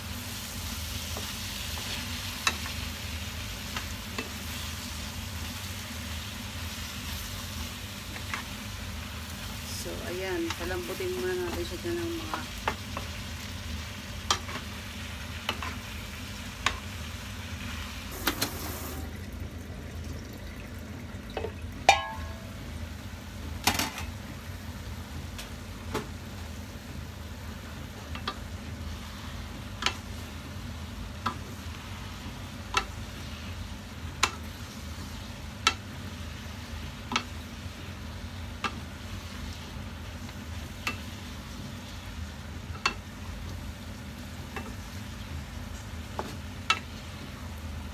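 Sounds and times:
food sizzling in frying pan: 0.0s - 47.9s
wooden spatula knocking pan: 21.4s - 22.4s
ringing clank: 21.9s - 22.4s.

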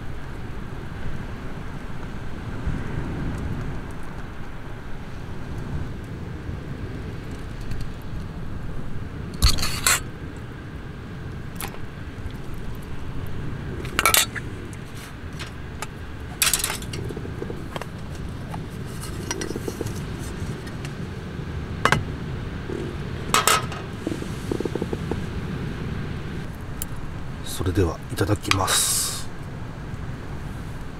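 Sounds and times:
low rumble: 12.4s - 27.4s
metal cookware clinking and scraping: 14.0s - 14.4s, 16.4s - 17.0s, 23.4s - 23.9s.

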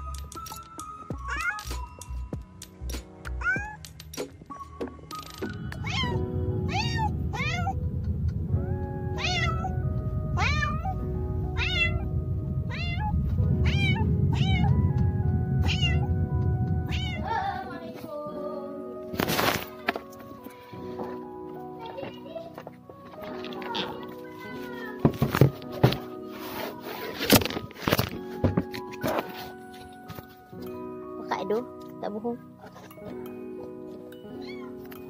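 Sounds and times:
background music: 0.0s - 35.0s
cat meowing: 1.2s - 1.8s, 3.4s - 3.8s, 5.8s - 7.8s, 9.2s - 9.8s, 10.4s - 11.0s, 11.6s - 12.1s, 12.7s - 14.8s, 15.6s - 16.1s, 16.9s - 17.5s, 34.3s - 34.8s.

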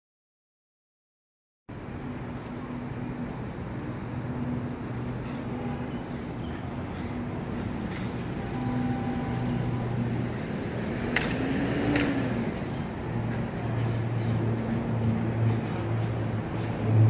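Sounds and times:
car engine and road noise: 1.7s - 17.0s
low rising and falling tone: 8.4s - 12.6s.

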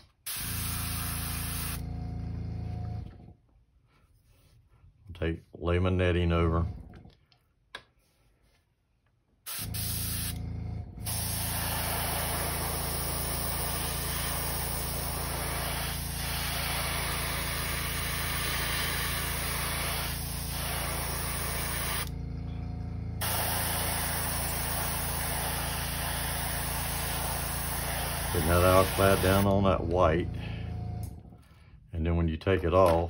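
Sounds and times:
air compressor humming: 0.0s - 3.3s, 9.5s - 31.6s
airbrush spraying hiss: 0.2s - 1.8s, 9.5s - 10.3s, 11.1s - 22.1s, 23.2s - 29.5s.

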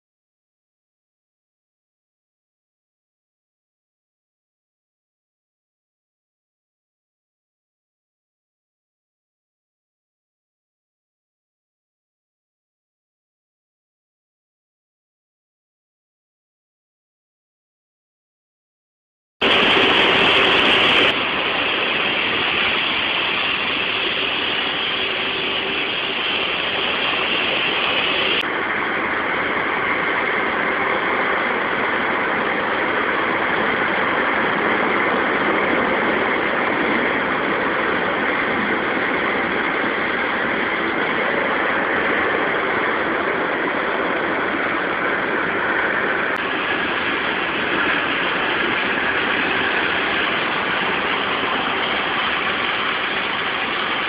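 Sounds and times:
pressure washer water jet hissing: 19.4s - 28.4s, 46.1s - 54.0s
pressure washer machine running: 19.4s - 33.4s, 45.6s - 54.0s.

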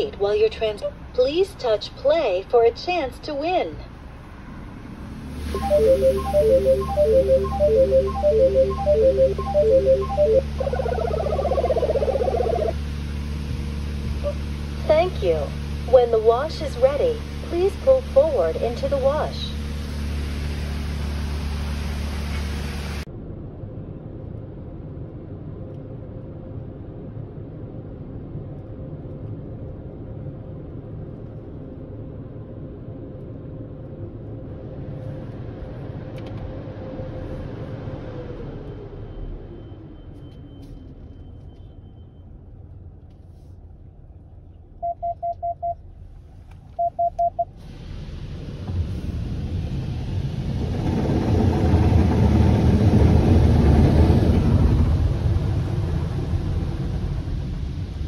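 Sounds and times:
loud electronic beeps: 5.5s - 12.8s.

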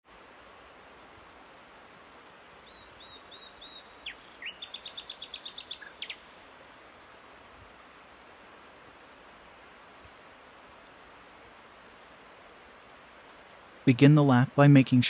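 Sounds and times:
outdoor ambience hiss: 0.0s - 15.0s
songbird singing: 2.6s - 6.8s.

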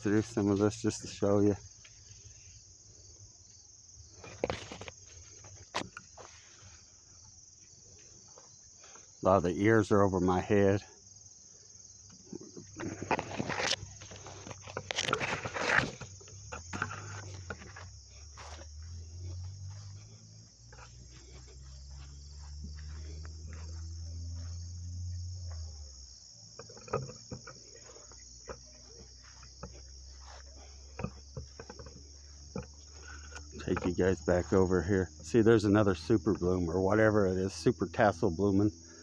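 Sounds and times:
crickets chirping: 0.0s - 39.0s
corn leaves rustling: 4.3s - 6.9s, 12.7s - 20.2s.

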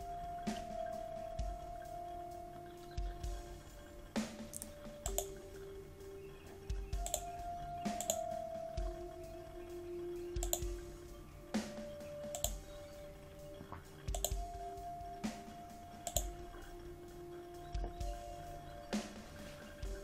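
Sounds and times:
quiet background music: 0.0s - 20.0s
computer mouse clicks: 4.5s - 5.3s, 7.0s - 7.3s, 7.9s - 8.2s, 10.4s - 10.7s, 12.3s - 12.6s, 14.1s - 14.4s, 16.0s - 16.4s.

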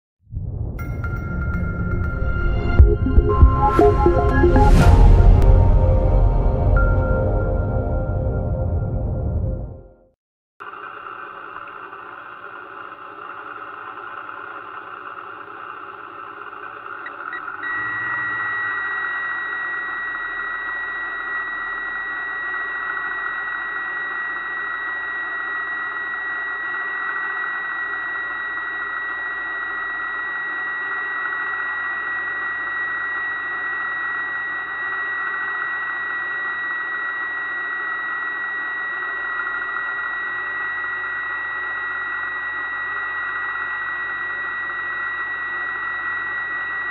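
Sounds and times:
steady high-pitched tone: 0.8s - 9.8s, 17.0s - 46.9s
electric motor whine: 10.6s - 46.9s.

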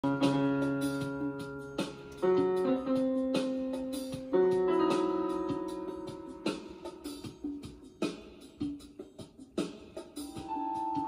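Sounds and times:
electronic keyboard piano chords: 0.0s - 11.0s.

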